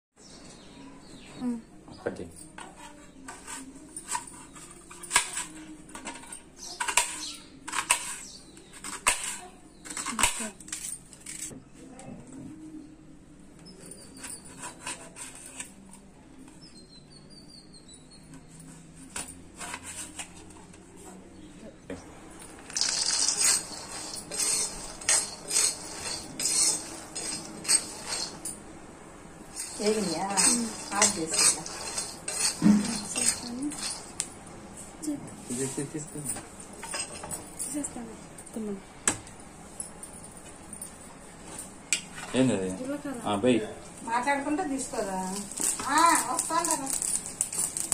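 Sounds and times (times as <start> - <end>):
spoon scraping nuts in a pan: 2.5 - 11.5, 22.7 - 28.6, 29.5 - 34.2, 45.4 - 47.9
knife scraping through onion: 13.9 - 15.9, 22.8 - 28.6, 29.5 - 34.2
peanuts poured into a pan: 22.7 - 24.8.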